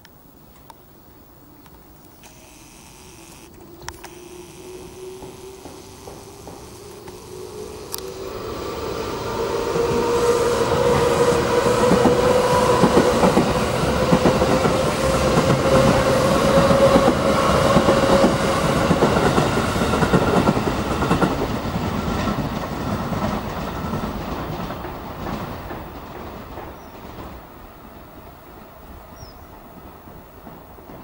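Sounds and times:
electric train motor whine: 2.1s - 20.5s
wheels clacking on rail joints: 4.7s - 7.7s, 10.7s - 27.7s.

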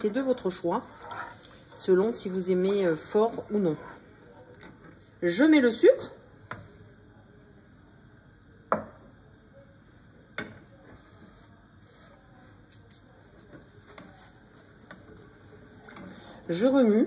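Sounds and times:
plastic spatula rubbing in pan: 0.0s - 4.2s, 10.8s - 16.8s.

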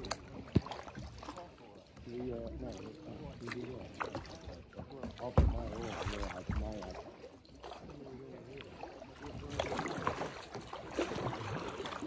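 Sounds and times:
kayak paddle splashing: 0.0s - 12.0s
light knocks on boat: 4.9s - 6.8s.

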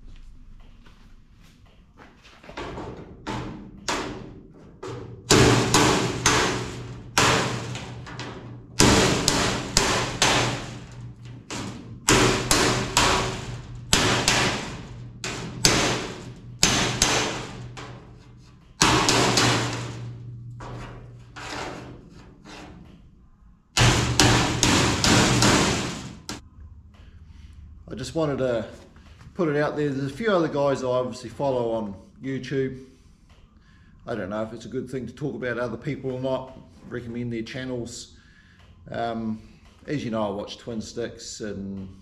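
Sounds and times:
hammer on sheet metal: 3.2s - 22.7s, 23.8s - 26.4s.

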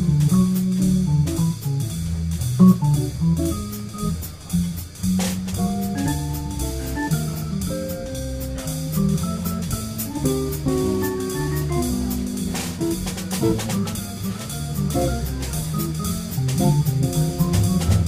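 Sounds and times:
drum kit played with sticks: 0.0s - 18.0s
jazz guitar: 0.0s - 18.0s
low bass line: 0.0s - 18.0s
organ chords: 5.6s - 18.0s.

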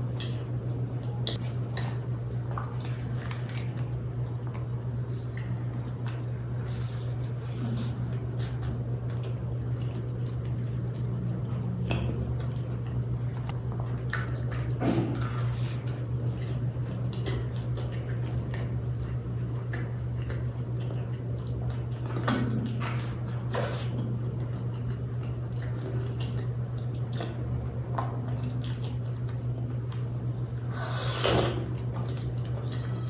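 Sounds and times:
chewing: 0.0s - 33.0s
crisp crust crackling: 1.3s - 11.6s.

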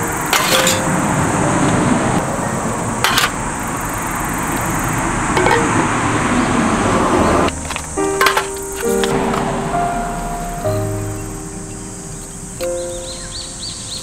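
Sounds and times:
outdoor background hiss: 0.0s - 14.0s
metal grinder clattering on table: 0.3s - 0.9s.

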